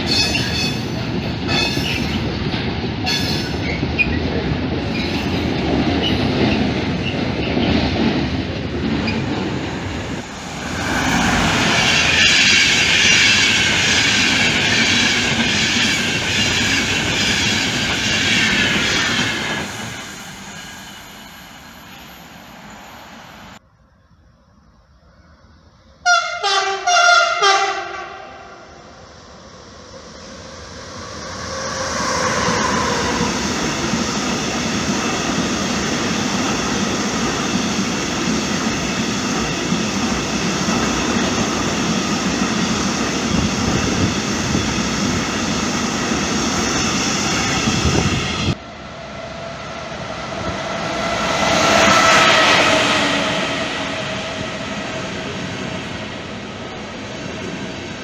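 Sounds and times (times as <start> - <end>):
freight train passing: 0.0 - 23.7, 24.4 - 58.0
passenger train passing: 0.0 - 23.7, 24.4 - 58.0
locomotive horn short blasts: 26.1 - 28.6.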